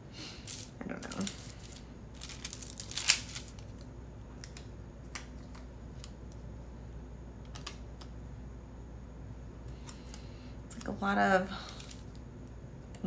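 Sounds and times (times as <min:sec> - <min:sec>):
paper rustling: 0:00.5 - 0:03.7.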